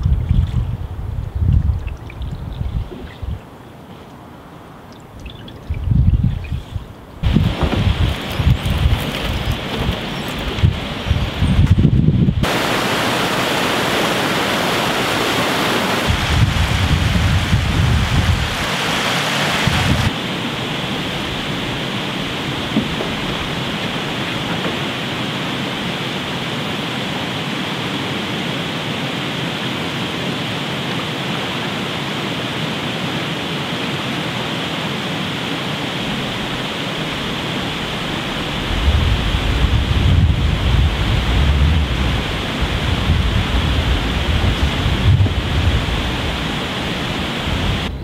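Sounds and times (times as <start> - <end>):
wind buffeting microphone: 0.0 - 3.5, 5.1 - 26.6, 36.0 - 48.0
river water rushing over gravel: 7.2 - 47.9.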